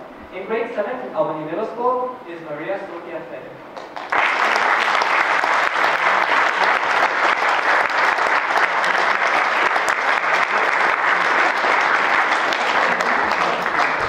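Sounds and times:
audience applauding: 3.8s - 14.0s.

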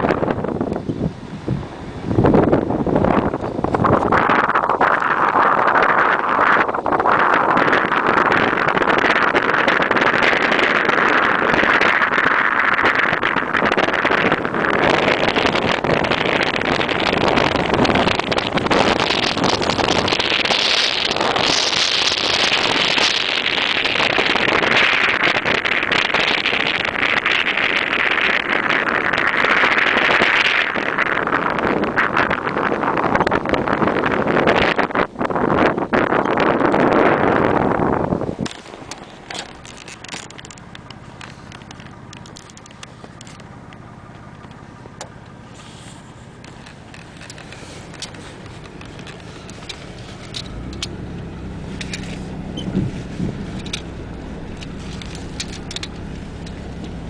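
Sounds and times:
engine and tyre rumble: 0.0s - 57.0s
truck driving over ice: 0.0s - 57.0s
wind buffeting microphone: 0.0s - 57.0s
ice crackling and clicking: 38.4s - 43.8s, 46.4s - 51.0s, 53.6s - 57.0s.

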